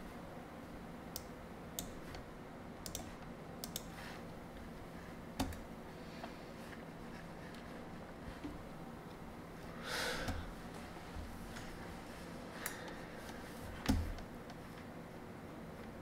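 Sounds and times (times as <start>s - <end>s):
soft clicks: 2.8s - 4.0s
short breath: 9.8s - 10.5s.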